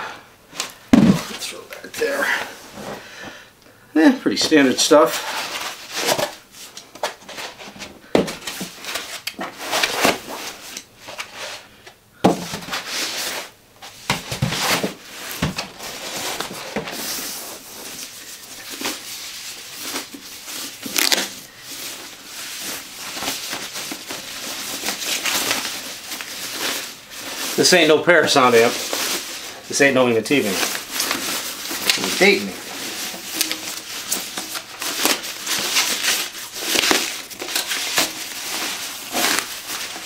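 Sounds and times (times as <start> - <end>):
plastic wrapping crinkling: 12.5 - 40.0.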